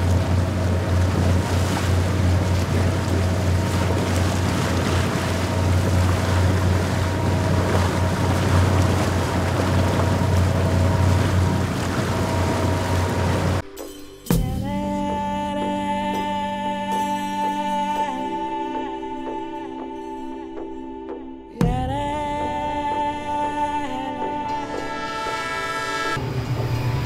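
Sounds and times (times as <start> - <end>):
speed boat engine droning: 0.0 - 13.6, 23.4 - 27.0
water rushing past hull: 0.0 - 13.6.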